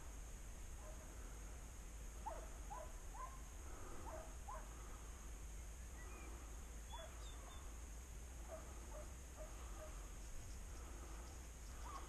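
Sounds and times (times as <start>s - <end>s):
distant dog barking: 0.8s - 1.1s, 2.2s - 4.8s, 6.9s - 7.4s, 8.4s - 10.1s, 11.8s - 12.0s.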